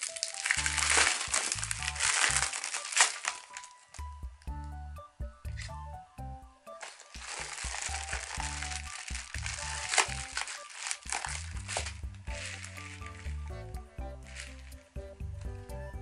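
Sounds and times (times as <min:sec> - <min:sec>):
plastic packaging crinkling: 0:00.0 - 0:04.2, 0:06.7 - 0:13.5, 0:14.2 - 0:14.8
background music with bass line: 0:00.4 - 0:02.7, 0:04.0 - 0:16.0.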